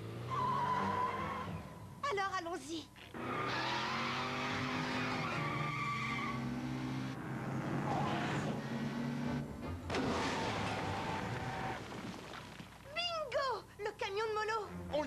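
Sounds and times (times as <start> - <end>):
tyres squealing: 3.0 - 6.5.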